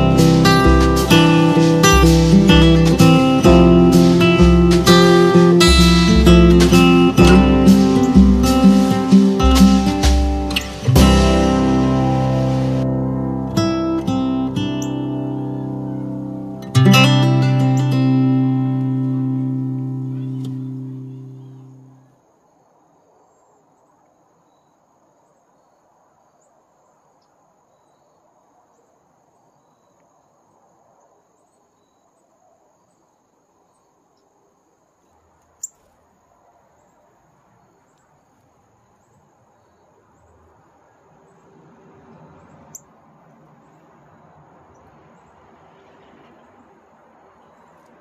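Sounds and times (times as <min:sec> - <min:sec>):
crickets trilling: 0:00.0 - 0:48.0.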